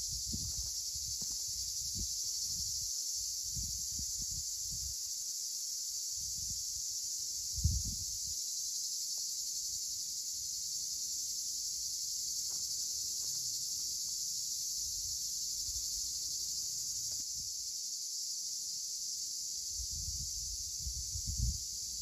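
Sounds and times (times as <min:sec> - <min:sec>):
insects chirring: 0:00.0 - 0:22.0.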